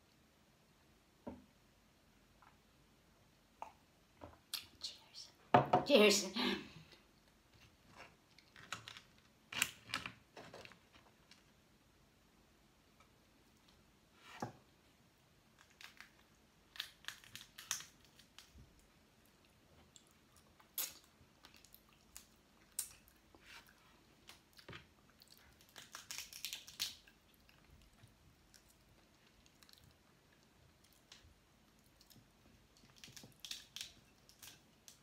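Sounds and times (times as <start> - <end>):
eating shellfish crunching: 15.5 - 35.0.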